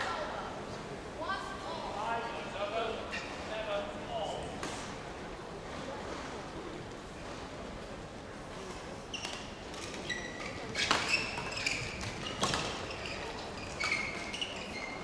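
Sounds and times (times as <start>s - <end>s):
shoes squeaking on court: 9.0s - 15.0s.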